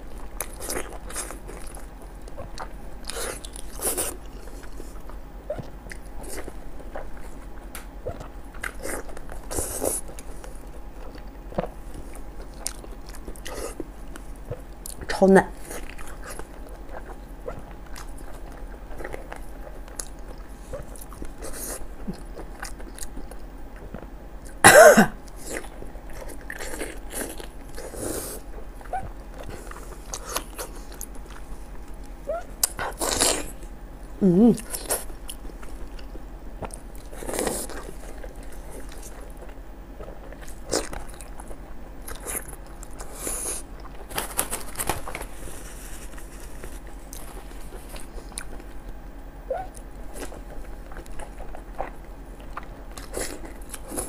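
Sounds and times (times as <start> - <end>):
wet biting and chewing: 25.3 - 33.6, 46.0 - 54.0.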